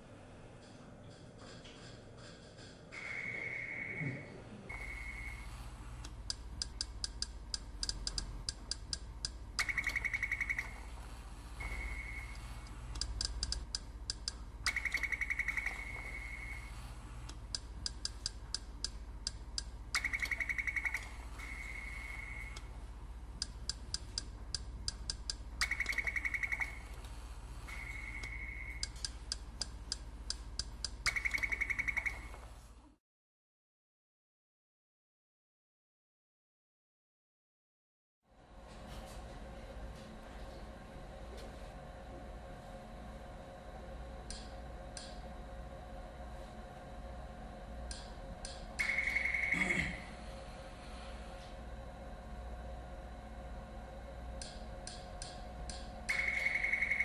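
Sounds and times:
low steady hum: 0.0s - 33.0s, 38.3s - 57.0s
sharp electronic clicks: 6.0s - 10.8s, 11.6s - 16.6s, 17.3s - 22.7s, 23.4s - 27.0s, 27.7s - 32.4s, 47.9s - 49.8s, 54.4s - 57.0s
electronic beep: 56.1s - 57.0s.

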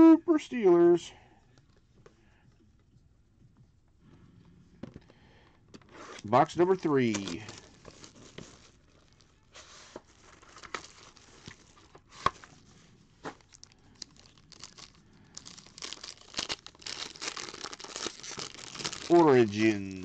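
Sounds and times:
foil pack crinkling: 6.8s - 12.6s, 13.3s - 20.0s
foil wrapper tearing: 6.9s - 12.5s, 13.4s - 20.0s.

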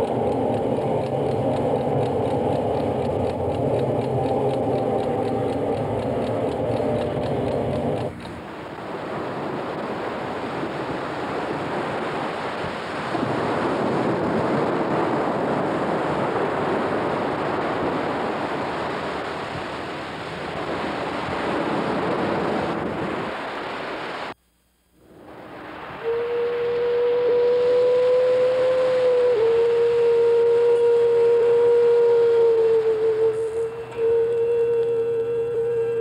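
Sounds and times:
steady low tone: 0.0s - 11.2s, 24.4s - 36.0s
ocean surf breaking on beach: 0.0s - 24.4s, 25.1s - 30.0s.

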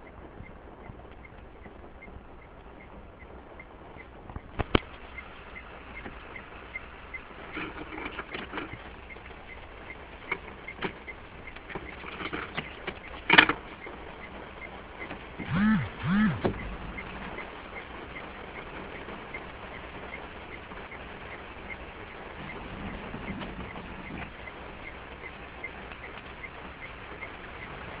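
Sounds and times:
rain pattering: 0.0s - 28.0s
sharp clicks: 0.4s - 5.2s
low rising and falling calls: 15.4s - 17.6s.

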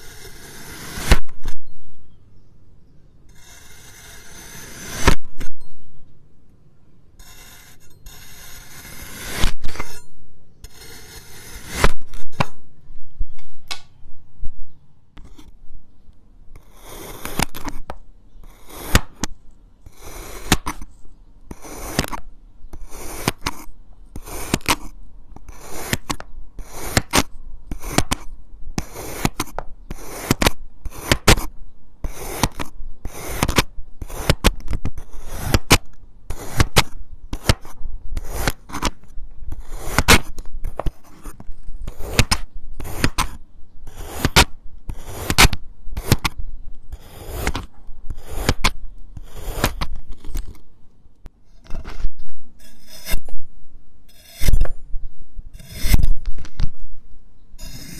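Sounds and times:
knife cutting sand: 0.0s - 1.5s, 3.3s - 5.2s, 7.2s - 10.0s, 10.7s - 12.6s, 16.6s - 17.9s, 18.5s - 19.3s, 19.9s - 20.9s, 21.5s - 50.6s, 51.6s - 53.3s, 54.1s - 54.7s, 55.6s - 56.2s, 57.6s - 57.9s.

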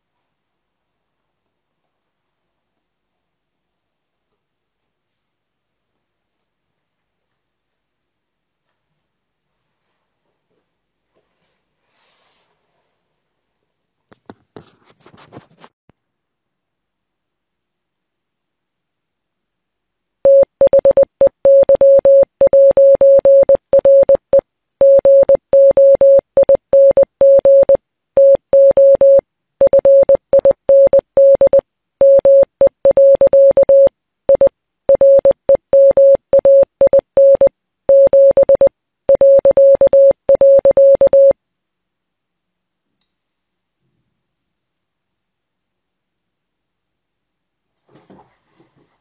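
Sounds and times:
morse code beeps: 20.3s - 41.4s.

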